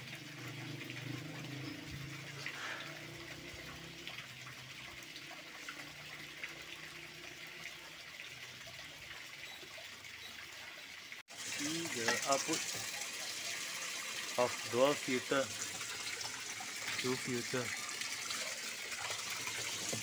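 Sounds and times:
water spraying into tank: 11.3s - 20.0s.

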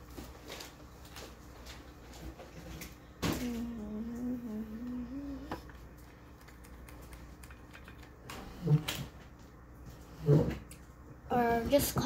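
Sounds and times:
girl humming: 3.3s - 5.7s.

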